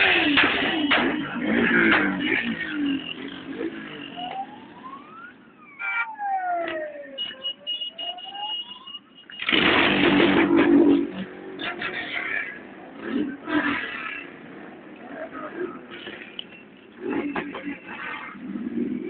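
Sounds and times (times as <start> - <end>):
siren wailing: 1.3 - 9.6.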